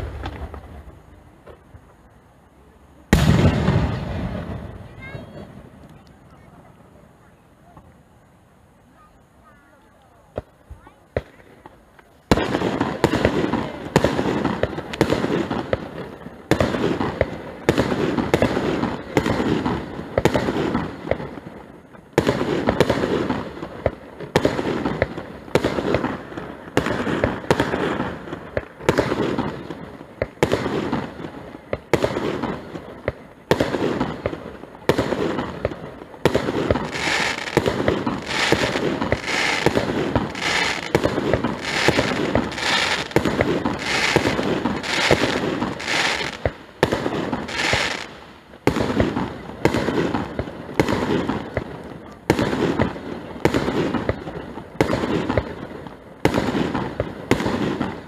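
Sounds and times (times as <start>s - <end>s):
firework crackling: 0.0s - 58.0s
firework shells bursting: 35.0s - 51.6s.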